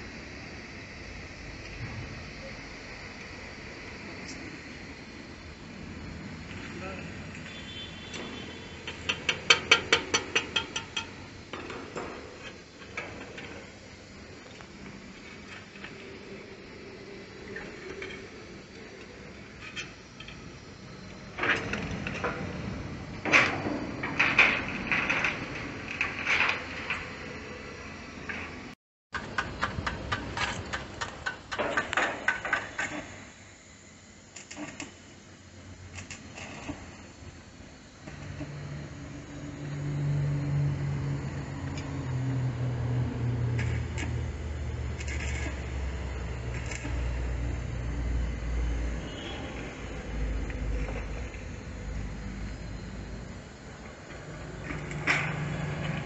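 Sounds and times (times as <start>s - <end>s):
metal taps of hand tools: 8.9s - 12.1s.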